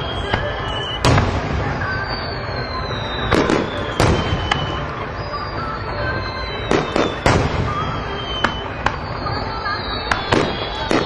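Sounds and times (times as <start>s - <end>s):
faint falling whistles: 0.0s - 11.0s
steady low rumble: 0.0s - 11.0s
firework shells bursting: 6.5s - 11.0s.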